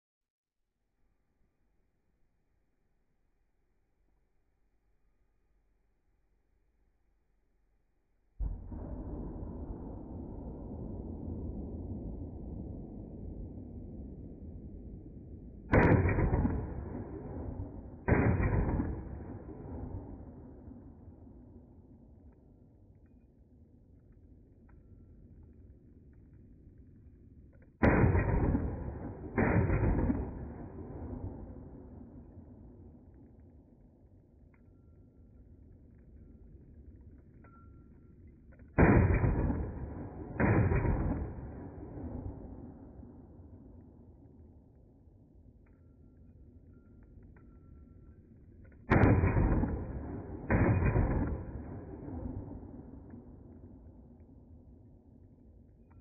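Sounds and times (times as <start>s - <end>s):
pistol shots with echo: 15.7s - 21.4s, 27.8s - 32.4s, 38.7s - 43.3s, 48.9s - 54.0s
pistol shots ringing: 48.9s - 52.3s.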